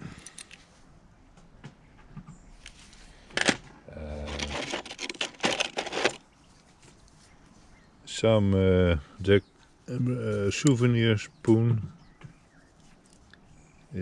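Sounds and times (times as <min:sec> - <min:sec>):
metal bits and marbles rattling: 0:04.2 - 0:06.2.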